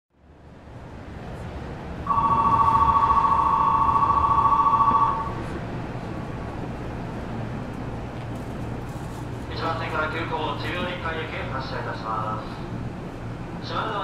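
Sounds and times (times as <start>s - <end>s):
train car hum: 0.1s - 14.0s
electronic bell trilling: 2.1s - 5.3s.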